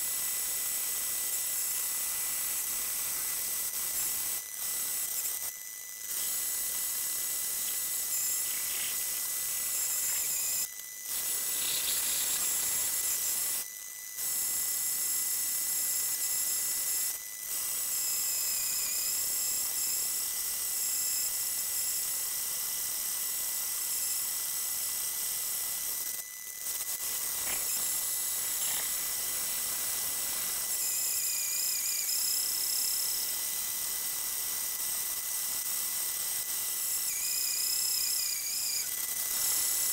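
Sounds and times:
bandsaw cutting metal: 0.0 - 13.6, 26.8 - 33.0.

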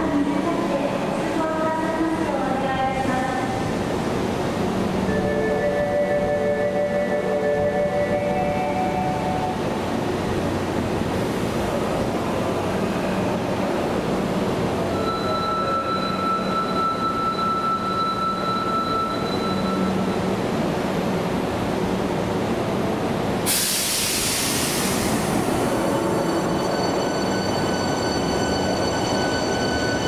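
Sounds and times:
train hum and rumble: 0.0 - 30.0
steady high tone: 5.1 - 9.6, 14.9 - 20.3, 25.4 - 30.0
loud hiss: 23.5 - 25.9.

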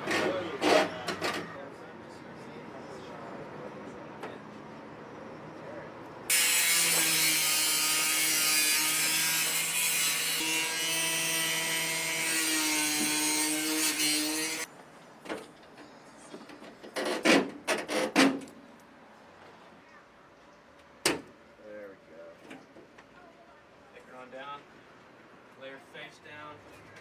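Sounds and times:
power tool cutting metal: 6.3 - 14.7.

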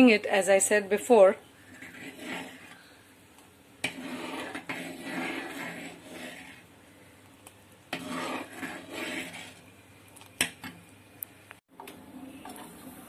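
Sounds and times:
liquid swishing in pot: 1.6 - 2.8, 3.8 - 6.8, 7.9 - 9.9.

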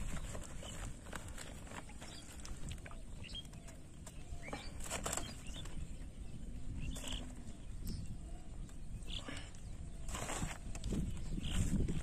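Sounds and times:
plastic sack rustling and flapping: 0.0 - 2.9, 4.7 - 5.8.

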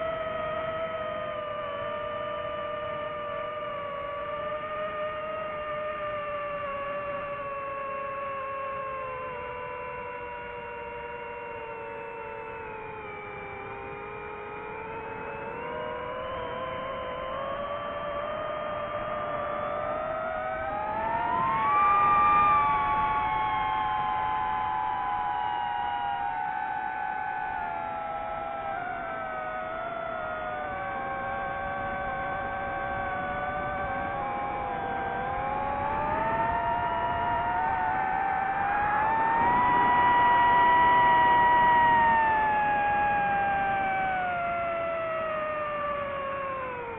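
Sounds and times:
quadcopter motors whining: 20.4 - 24.7, 30.7 - 46.9.

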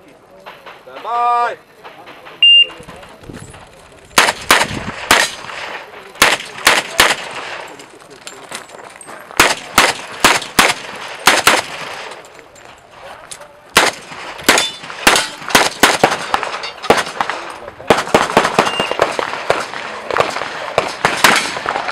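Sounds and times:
handgun shots with echo: 4.2 - 5.5, 6.2 - 7.5, 9.4 - 12.1, 13.8 - 21.9.

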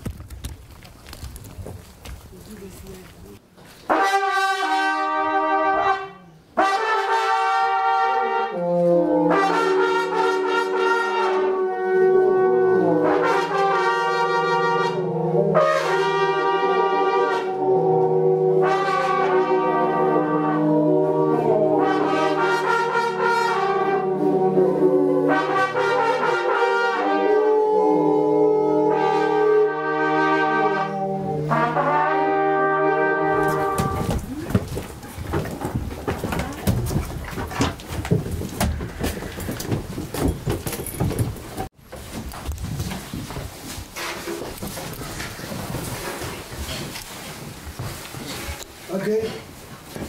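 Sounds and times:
brass instruments playing chords: 3.9 - 34.3.

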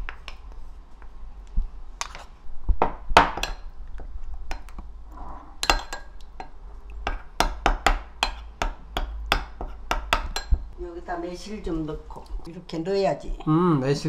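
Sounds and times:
metal spoon clinking on ceramic bowl: 5.6 - 6.2.

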